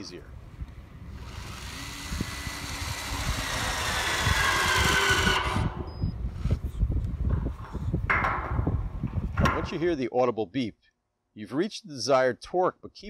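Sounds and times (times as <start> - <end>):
torque wrench motor whining: 1.1 - 6.0.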